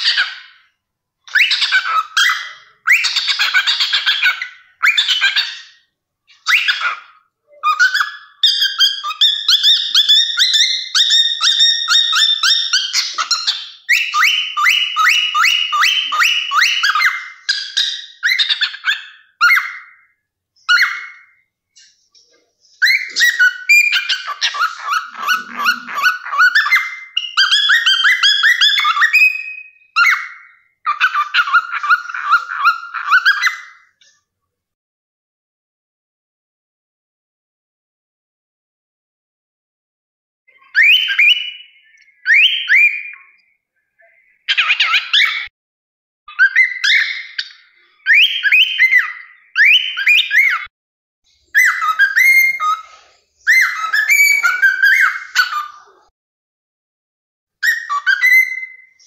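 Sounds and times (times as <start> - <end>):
cockatiel warbling and chattering: 0.0 - 0.7, 1.3 - 34.2, 40.5 - 43.4, 44.0 - 45.5, 46.3 - 50.7, 51.5 - 56.1, 57.6 - 59.0.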